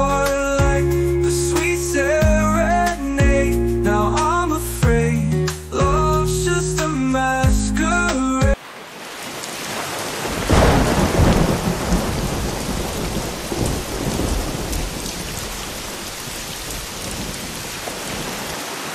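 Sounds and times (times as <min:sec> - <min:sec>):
heavy rain: 0:08.5 - 0:18.9
thunder rumbling: 0:10.2 - 0:18.4.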